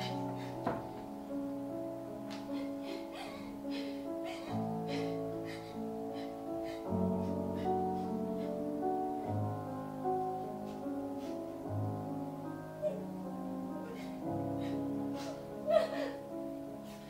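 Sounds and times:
slow piano music: 0:00.0 - 0:17.0
sharp breath or cry: 0:02.5 - 0:09.3.

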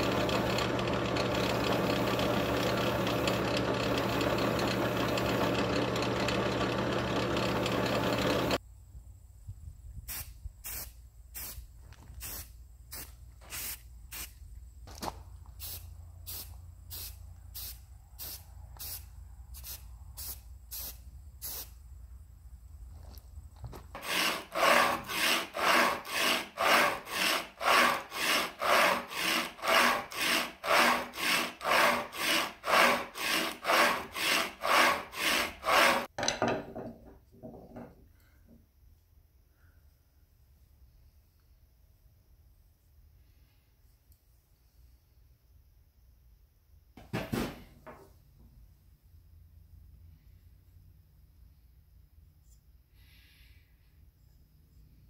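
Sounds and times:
wire wheel running: 0:00.0 - 0:08.6, 0:24.0 - 0:36.1
blade rubbing on sharpening plate: 0:24.0 - 0:36.1.

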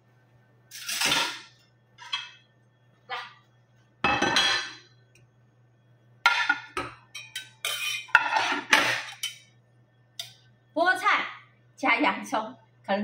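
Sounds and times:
dish clattering on counter: 0:04.0 - 0:04.8, 0:06.3 - 0:09.4
metal utensil scraping a pot: 0:07.2 - 0:09.4.

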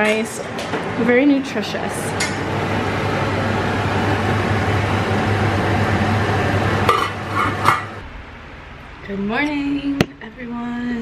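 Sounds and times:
kitchen appliance whirring: 0:00.8 - 0:08.0.

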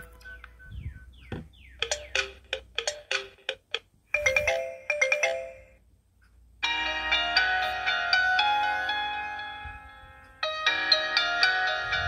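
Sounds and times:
smartphone ringtone previews: 0:04.2 - 0:05.8, 0:06.6 - 0:12.0.

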